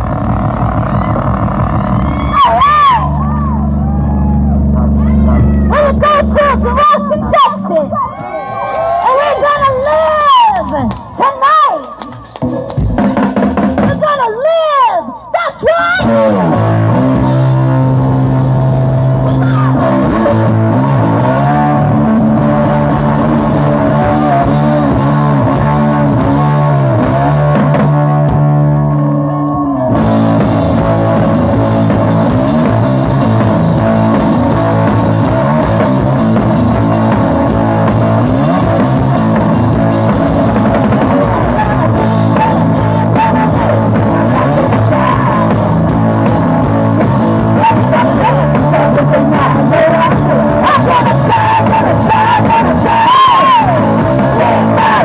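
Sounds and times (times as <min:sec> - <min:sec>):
electric guitar: 0:00.0 - 0:14.1, 0:15.7 - 0:55.0
punk blues rock band: 0:00.0 - 0:14.6, 0:15.4 - 0:55.0
drum kit and cymbals: 0:12.2 - 0:14.1.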